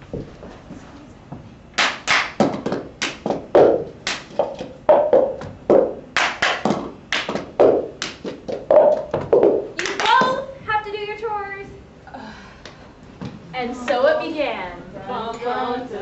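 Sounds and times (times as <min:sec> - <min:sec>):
hands clapping: 0:01.8 - 0:03.4, 0:04.0 - 0:04.6, 0:06.2 - 0:09.1, 0:09.8 - 0:10.4
cups tapping on floor: 0:02.3 - 0:10.4.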